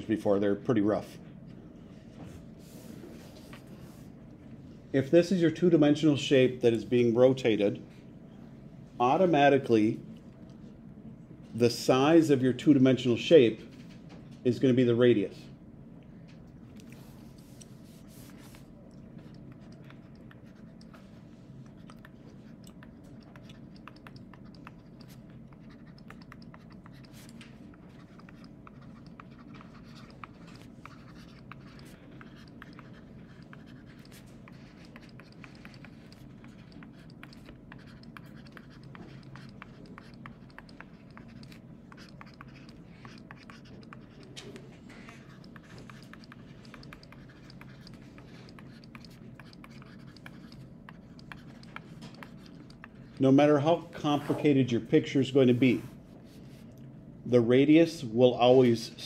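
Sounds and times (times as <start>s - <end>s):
faint steady hum: 0.0s - 59.0s
stylus scratching on tablet screen: 16.9s - 54.4s.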